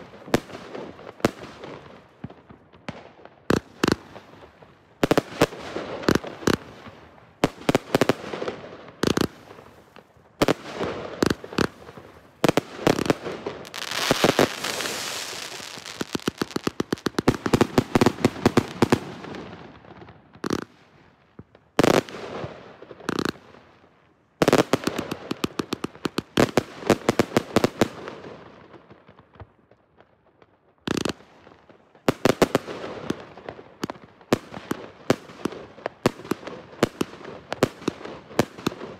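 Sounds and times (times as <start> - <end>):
crackling pops with hissing spray: 11.2 - 19.1
firework tubes launching: 12.9 - 18.8.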